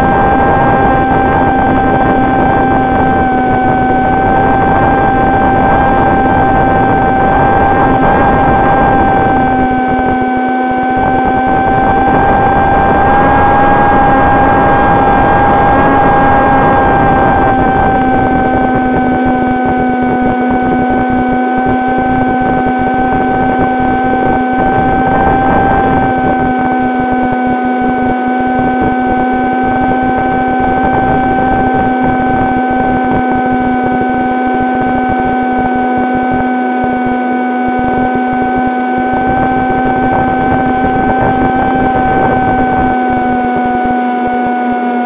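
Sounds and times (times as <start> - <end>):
electric motor and propeller hum: 0.0 - 45.0
wind buffeting the microphone: 0.0 - 45.0.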